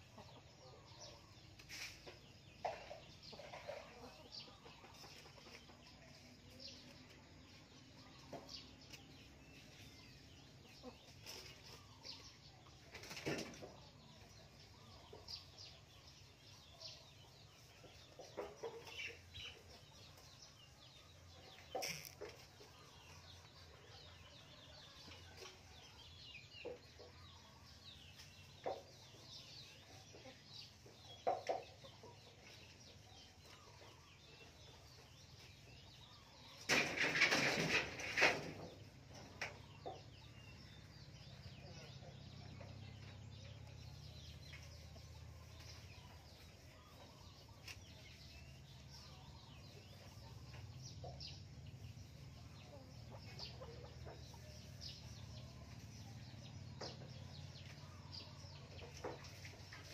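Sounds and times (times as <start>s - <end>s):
distant hen clucking: 0.0s - 15.8s, 20.8s - 34.1s.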